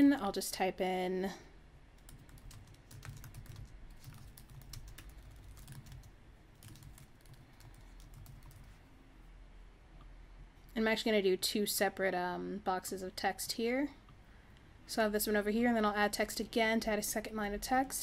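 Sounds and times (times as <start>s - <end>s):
typing on computer keyboard: 2.0s - 8.8s.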